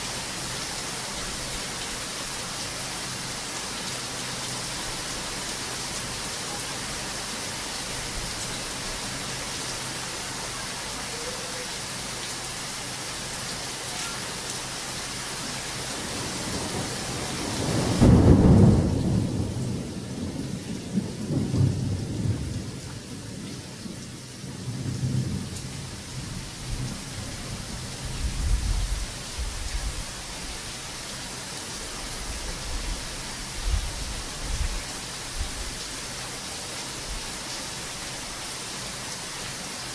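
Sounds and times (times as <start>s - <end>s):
heavy rain hissing: 0.0s - 39.9s
rolling thunder rumbles: 16.2s - 23.2s
loud thunderclap: 17.6s - 19.8s.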